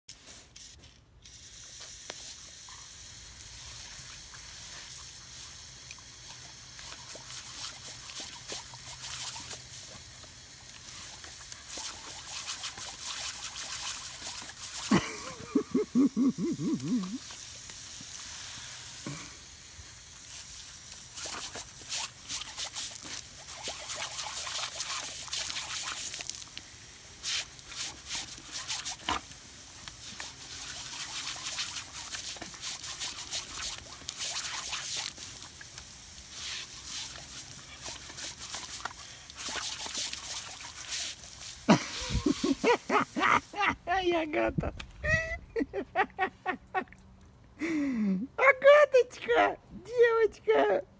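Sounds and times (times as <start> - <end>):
water jet hissing and spraying: 0.4 - 43.7
dog biting and lapping water: 3.5 - 19.3, 20.2 - 43.5.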